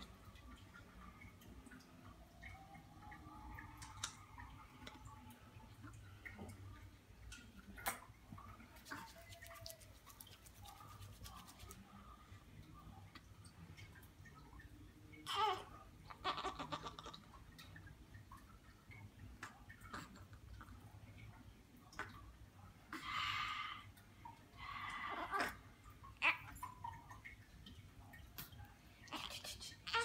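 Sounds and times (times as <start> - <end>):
faint baby sounds: 15.0 - 17.4, 21.9 - 27.0, 28.9 - 30.0.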